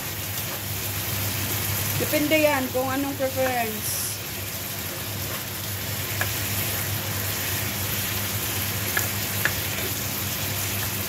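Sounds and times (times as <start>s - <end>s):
food sizzling in a frying pan: 0.0s - 11.0s
spatula tapping a pan: 6.1s - 6.4s, 8.9s - 9.7s.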